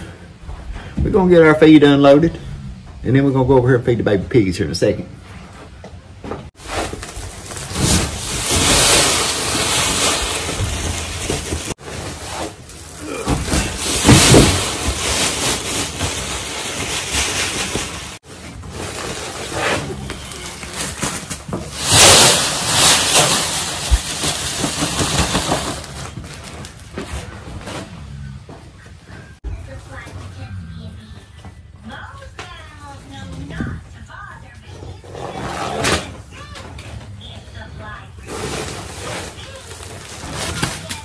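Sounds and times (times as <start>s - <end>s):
sack rustling: 6.5s - 27.7s.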